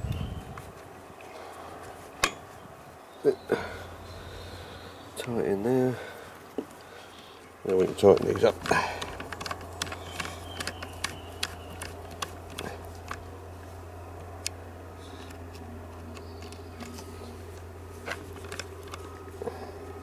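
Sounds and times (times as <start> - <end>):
steady low hum: 0.0 - 20.0
screwdriver clicking and scraping: 7.7 - 13.2.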